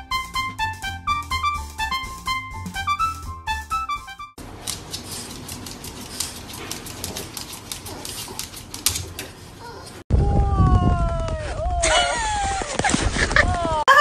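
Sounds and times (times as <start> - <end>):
piano music: 0.0 - 4.4
dog claws scratching on wood: 4.6 - 9.4.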